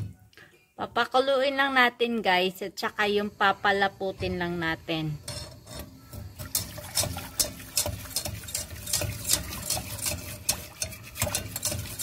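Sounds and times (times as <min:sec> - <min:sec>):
whisk scraping against a pan: 0:05.3 - 0:12.0
liquid sloshing in a saucepan: 0:05.5 - 0:12.0.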